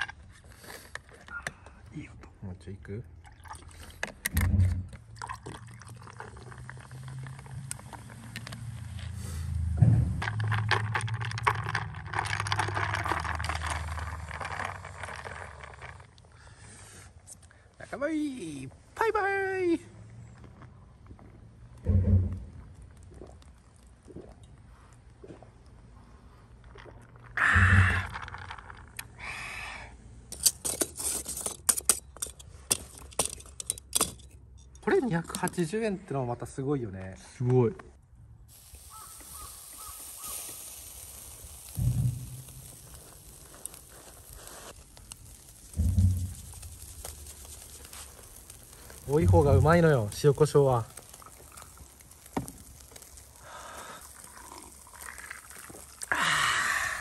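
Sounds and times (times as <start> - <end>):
liquid pouring over ice: 3.2 - 4.0, 5.1 - 8.9, 10.3 - 16.3, 22.7 - 24.7, 38.5 - 57.0
drink fizzing: 3.2 - 4.2, 4.9 - 9.6, 10.2 - 16.4, 22.6 - 29.2, 38.5 - 57.0
breathy rush: 56.0 - 57.0.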